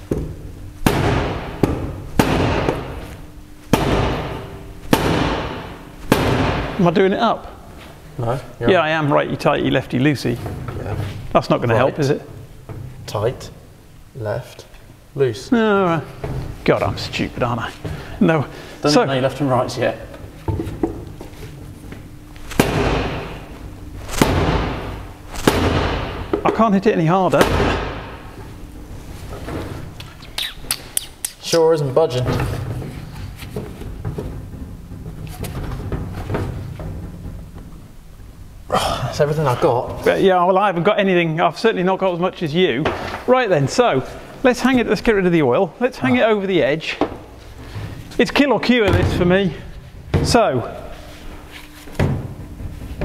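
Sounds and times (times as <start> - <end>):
timber hammering plastic lid: 3.7 - 6.8, 24.2 - 26.6.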